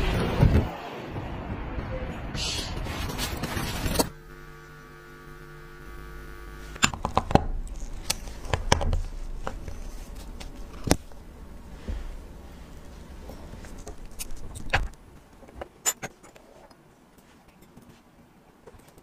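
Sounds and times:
electrical hum: 0:00.0 - 0:15.8.

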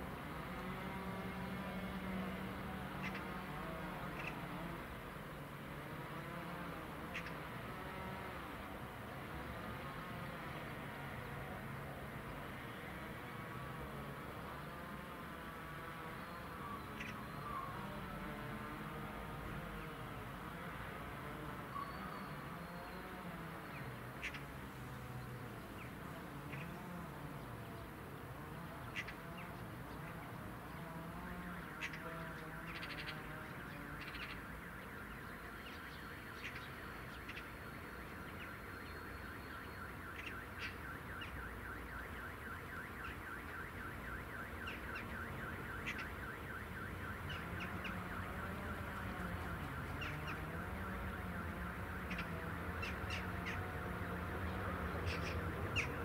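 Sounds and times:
pulsing electronic warning tone: 0:34.4 - 0:56.0.

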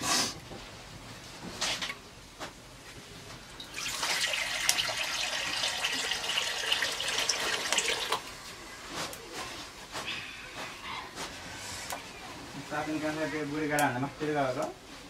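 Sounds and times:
water pouring into metal wok: 0:03.6 - 0:08.2.

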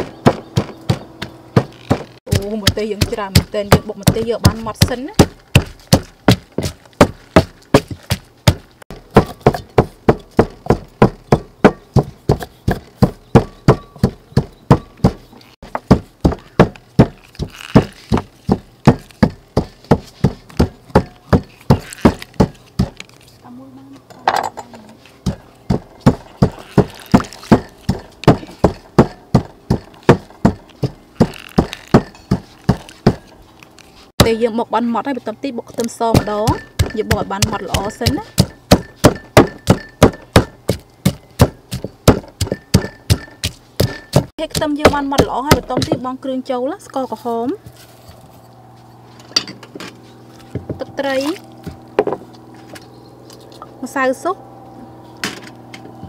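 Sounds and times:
pestle pounding in stone mortar: 0:00.0 - 0:23.0, 0:25.2 - 0:33.3, 0:34.2 - 0:34.4, 0:35.7 - 0:46.2.

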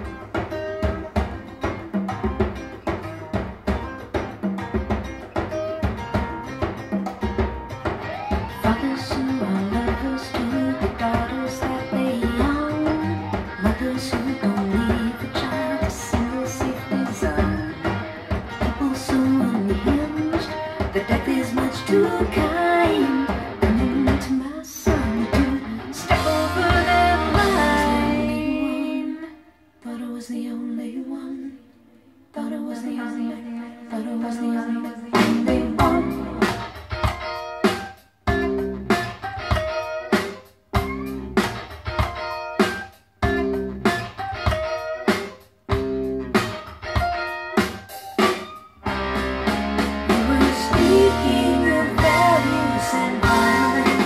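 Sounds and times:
band with bass and drums: 0:00.0 - 0:28.6, 0:35.1 - 0:54.0
guitar-led instrumental music: 0:00.0 - 0:29.2, 0:34.9 - 0:54.0
guitar chords ringing: 0:25.0 - 0:28.8, 0:45.7 - 0:54.0.

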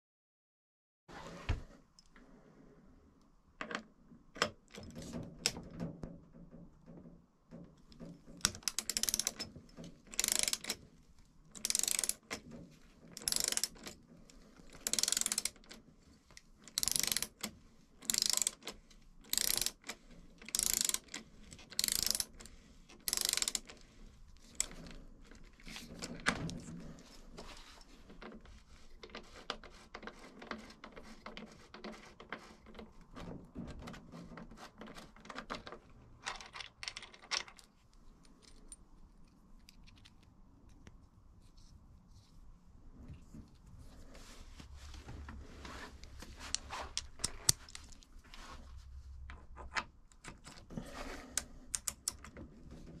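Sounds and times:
tool handling clicks and knocks: 0:03.6 - 0:40.9, 0:44.9 - 0:48.5, 0:49.2 - 0:53.0
ratchet wrench clicking: 0:08.4 - 0:09.5, 0:10.1 - 0:10.8, 0:11.6 - 0:12.4, 0:13.2 - 0:13.9, 0:14.7 - 0:15.8, 0:16.7 - 0:22.3, 0:23.0 - 0:23.7.

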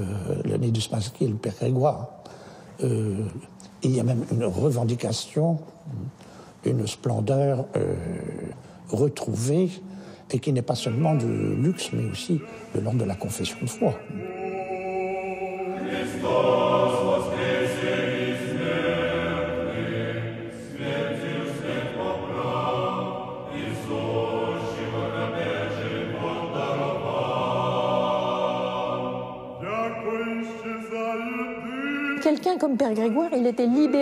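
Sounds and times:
choir singing a cappella chant: 0:10.6 - 0:34.0.

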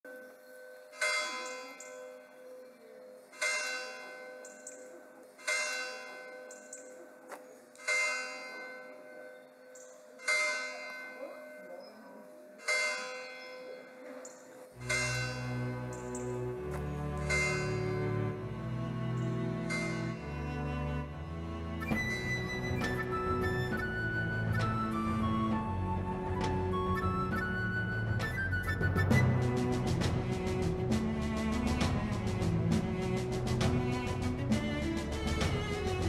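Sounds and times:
large bell tolling: 0:14.8 - 0:18.4, 0:19.7 - 0:20.4
low music: 0:14.8 - 0:36.0.

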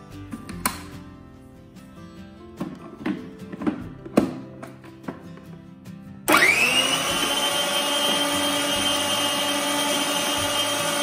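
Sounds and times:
mixer grinder motor whine: 0:06.3 - 0:11.0.

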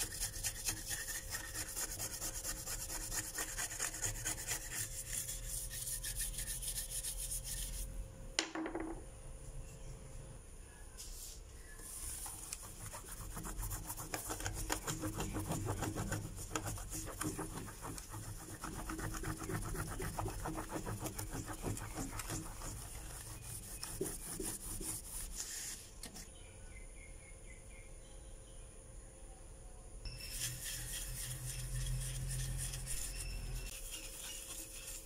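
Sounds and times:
cloth rubbing on metal plate: 0:11.8 - 0:25.8.

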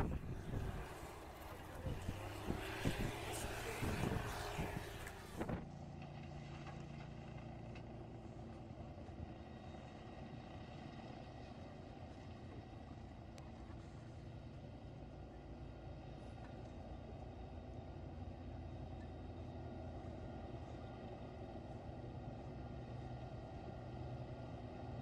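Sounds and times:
loud rushing noise: 0:00.0 - 0:05.6
snow blower engine: 0:00.0 - 0:12.1.

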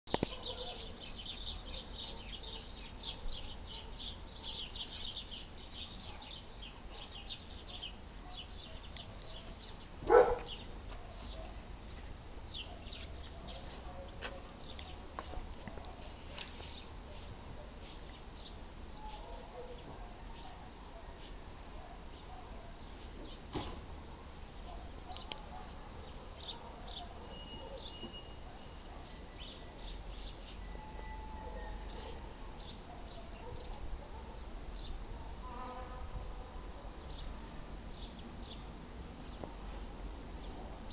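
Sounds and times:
small birds chirping: 0:00.1 - 0:35.0
faint sharp clicks: 0:25.1 - 0:25.4.

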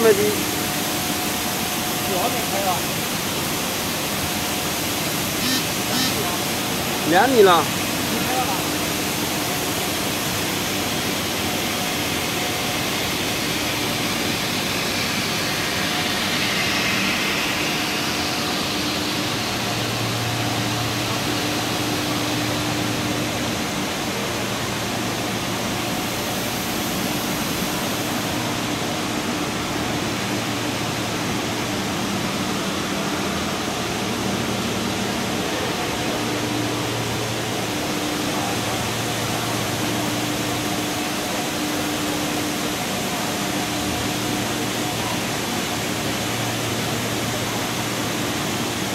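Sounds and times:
low machine hum: 0:00.0 - 0:48.9
steady machine tones: 0:05.1 - 0:08.6, 0:12.4 - 0:23.5
extrusion machine hiss: 0:13.2 - 0:20.2.

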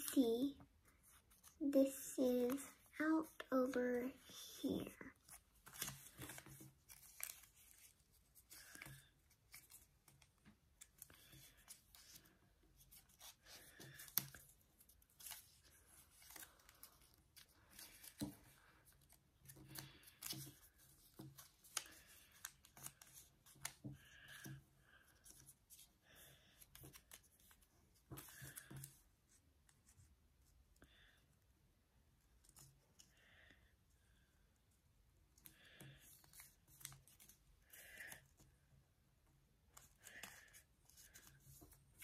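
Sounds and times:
paper rustling and crinkling: 0:04.8 - 0:24.5, 0:25.1 - 0:30.0, 0:35.6 - 0:38.4.

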